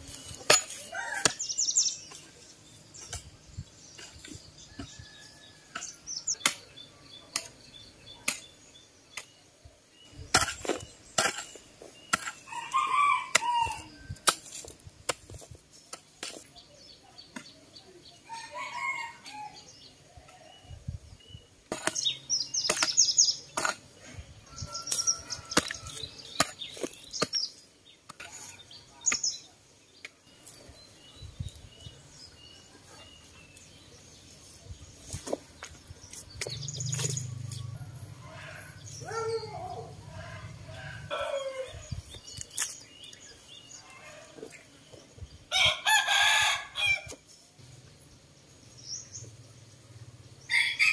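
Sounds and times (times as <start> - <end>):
hoe chopping dry soil: 0.0 - 2.3, 2.9 - 9.4, 10.2 - 12.6, 13.2 - 16.6, 21.7 - 23.9, 24.7 - 29.5
small birds chirping: 0.0 - 50.9
rooster crowing: 12.5 - 14.0, 18.3 - 19.6, 37.6 - 41.9, 45.5 - 47.1, 50.5 - 50.9.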